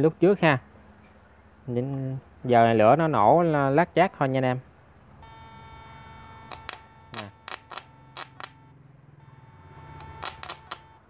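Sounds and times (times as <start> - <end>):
steady electronic whine: 5.2 - 11.0
sharp snapping spark cracks: 6.5 - 8.6, 10.0 - 10.8.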